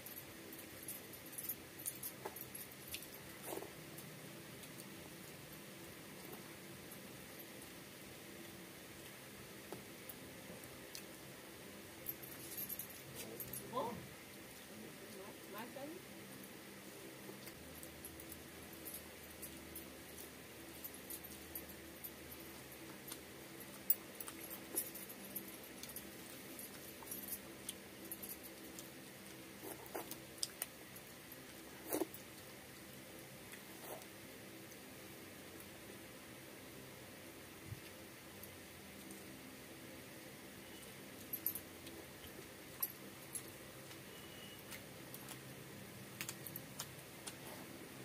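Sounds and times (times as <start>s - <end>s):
bangles clicking and jingling: 0.0s - 3.7s, 12.0s - 14.0s, 17.4s - 32.2s, 40.7s - 42.0s
low steady hum: 0.0s - 48.0s
mouths chewing: 28.6s - 32.9s.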